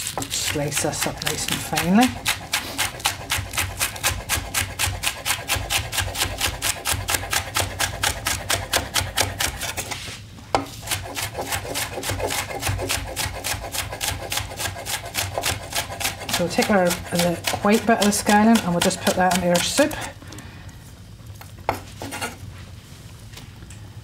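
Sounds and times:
knife chopping on wooden board: 0.1s - 9.7s, 10.5s - 20.1s.

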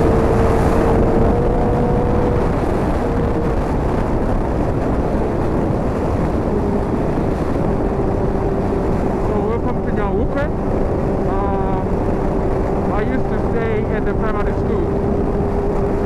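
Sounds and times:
motorcycle engine whine: 0.0s - 16.0s
wind and road noise: 0.0s - 16.0s.

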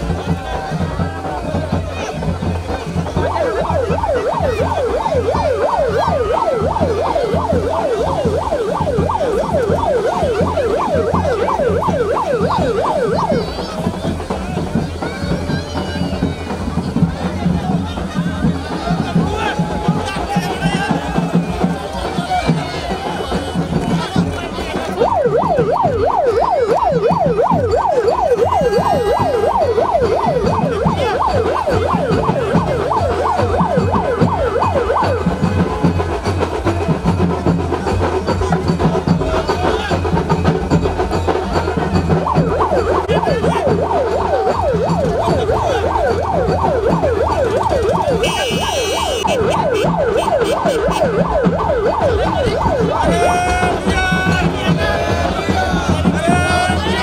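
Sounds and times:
low music beat: 0.0s - 57.0s
electronic siren yelping: 1.5s - 15.3s, 18.0s - 36.6s, 41.4s - 57.0s.

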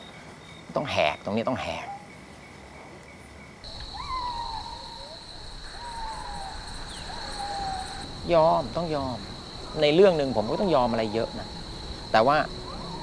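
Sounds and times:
high insect drone: 3.6s - 13.0s
hooting calls: 3.7s - 13.0s.

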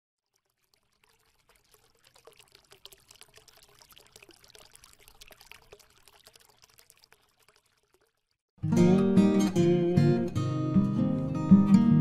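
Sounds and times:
liquid pouring and trickling: 0.2s - 8.5s.

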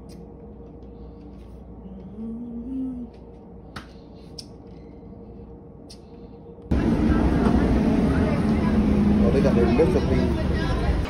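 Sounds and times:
steady hum: 0.0s - 11.0s
person humming a note: 1.9s - 3.2s.

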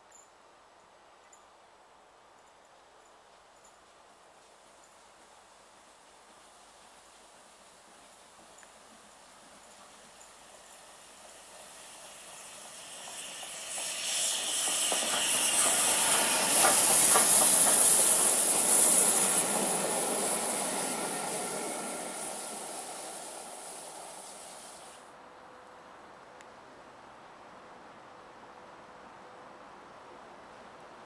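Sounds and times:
steam locomotive passing: 5.7s - 25.1s
wheels clicking over rail joints: 8.0s - 24.9s
hiss of steam: 9.2s - 25.1s.

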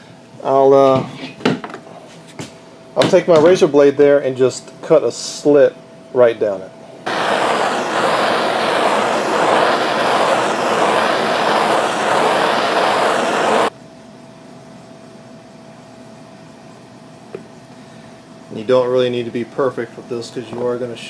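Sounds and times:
gas torch burning: 7.0s - 13.7s.

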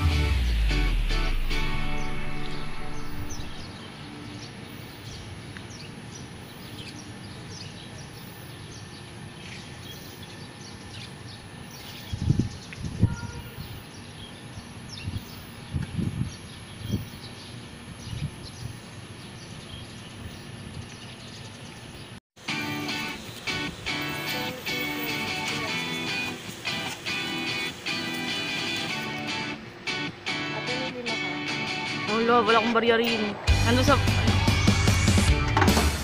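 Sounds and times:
bird chirps: 1.9s - 22.2s
wind buffeting microphone: 11.9s - 14.0s, 14.9s - 18.9s.

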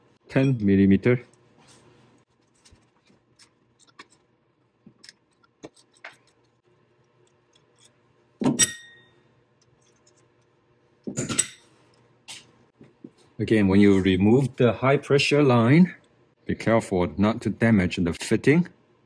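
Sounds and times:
sharp ringing metallic clink: 8.6s - 9.2s.

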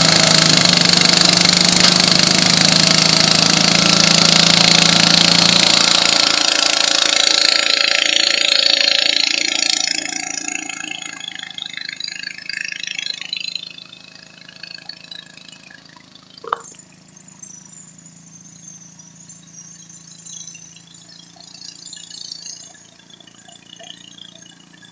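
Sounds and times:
tractor engine running hard: 0.0s - 16.8s
tractor engine idling: 2.0s - 16.9s.

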